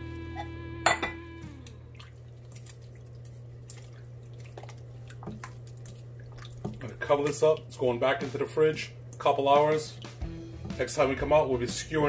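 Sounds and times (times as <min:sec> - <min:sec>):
steady low hum: 0:00.0 - 0:12.0
wet squelches and drips: 0:01.4 - 0:08.1, 0:08.9 - 0:10.8.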